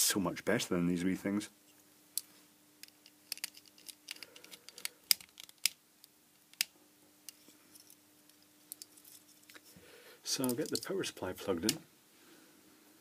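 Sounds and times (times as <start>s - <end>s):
small screwdriver clicks and scrapes: 2.8s - 5.8s.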